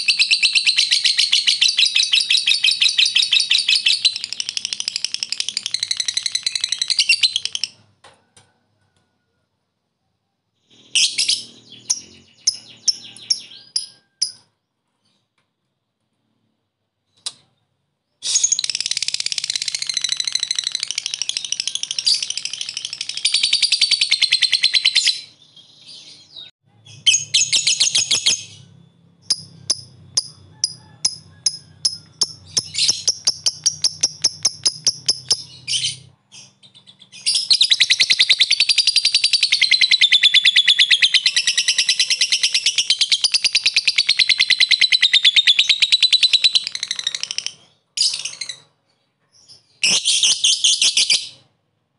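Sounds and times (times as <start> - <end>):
bird sharp ticking calls: 27.1 - 35.8
lovebird chattering trills: 29.2 - 36.0.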